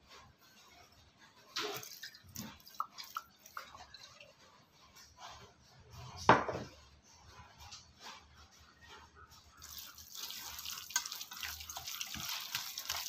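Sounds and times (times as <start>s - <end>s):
liquid pouring and dripping: 1.5s - 4.4s, 9.6s - 13.0s.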